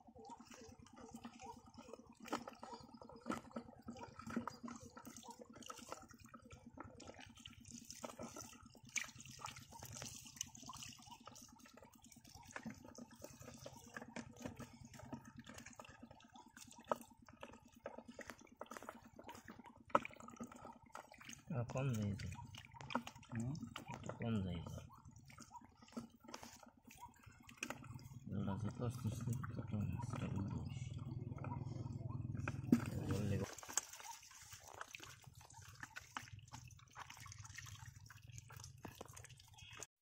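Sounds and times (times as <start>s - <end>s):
hands squelching through mud: 25.5s - 39.9s.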